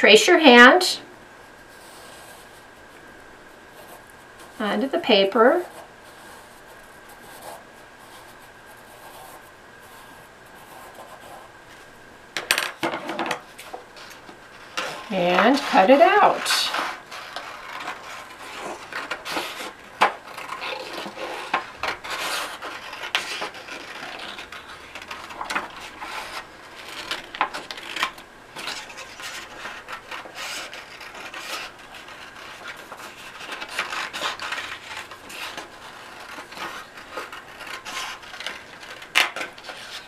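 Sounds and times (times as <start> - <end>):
paper rustling: 12.9 - 40.0
scissors snipping paper: 14.8 - 40.0.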